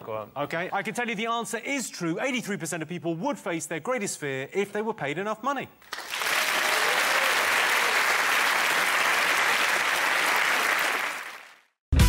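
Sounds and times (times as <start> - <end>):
audience applauding: 5.8 - 11.7.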